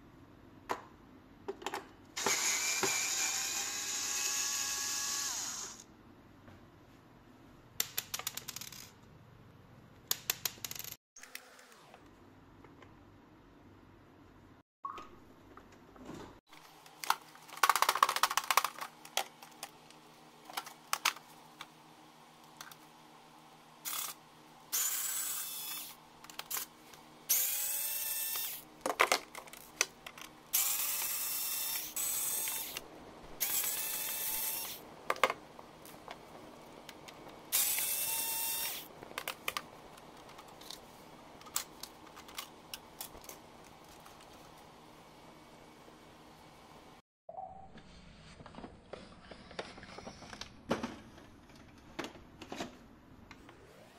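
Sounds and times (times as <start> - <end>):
plastic parts clicking and knocking: 1.5 - 1.9, 16.9 - 21.7, 28.8 - 30.4, 35.1 - 37.4, 39.0 - 40.8, 41.4 - 44.5, 49.6 - 53.4
electric screwdriver whining: 2.2 - 5.8, 30.6 - 32.8, 37.5 - 38.8.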